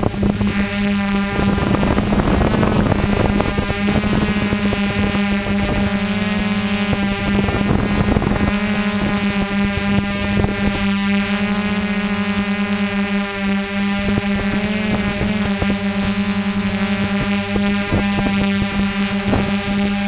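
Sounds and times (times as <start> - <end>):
drone propellers humming: 0.0 - 20.0.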